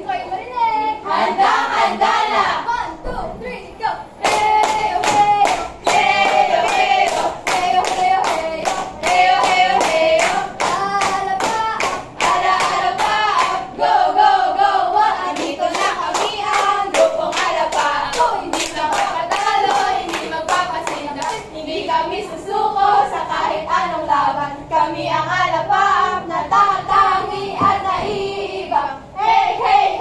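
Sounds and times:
group of young people singing: 0.0 - 30.0
hands clapping on a beat: 4.2 - 13.6, 15.3 - 21.4.

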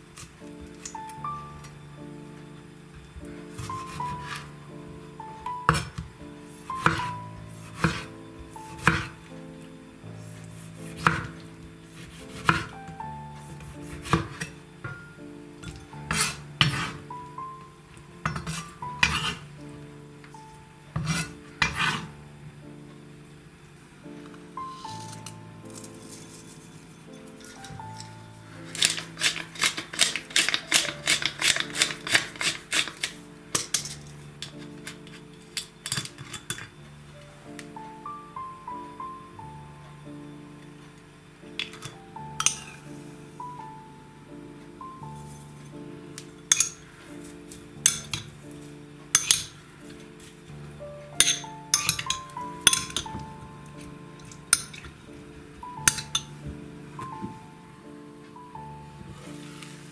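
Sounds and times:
soft background music: 0.0 - 59.9
knife chopping on cutting board: 8.8 - 9.1, 10.8 - 11.3, 11.9 - 12.7, 13.8 - 14.5.

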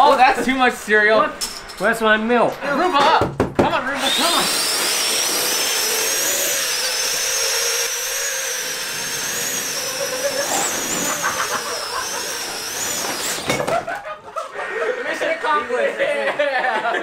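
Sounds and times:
electric ducted fans whining: 0.0 - 16.8
sharp knocks: 3.0 - 3.8.

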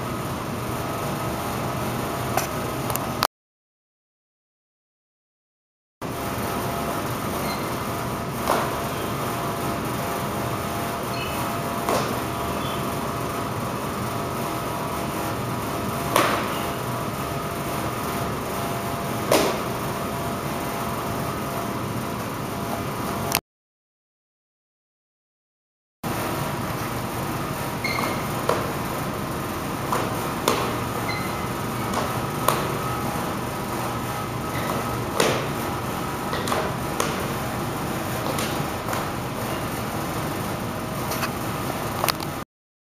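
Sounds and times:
room hum: 0.0 - 3.3, 6.0 - 23.4, 26.1 - 42.4
sharp slap impacts: 11.8 - 12.4, 16.1 - 16.7, 19.2 - 19.8, 31.9 - 33.0, 34.5 - 35.6, 38.2 - 39.2.

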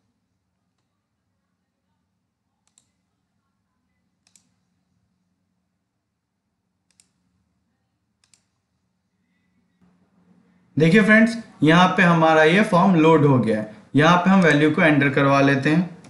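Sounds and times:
faint computer mouse clicks: 2.6 - 3.0, 4.2 - 4.7, 6.8 - 7.2, 8.2 - 8.6.

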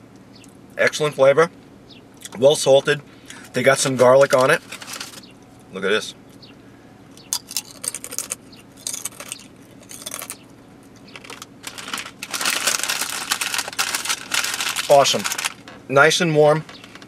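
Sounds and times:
potato chips crunching: 7.3 - 15.7.

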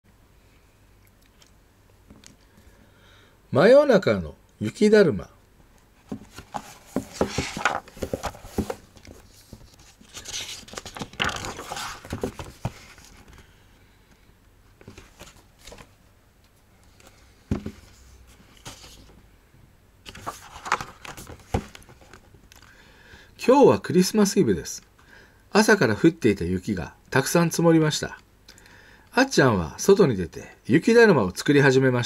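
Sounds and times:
paper rustling and crinkling: 6.0 - 13.5, 14.8 - 16.0, 17.0 - 19.1, 20.0 - 22.2.

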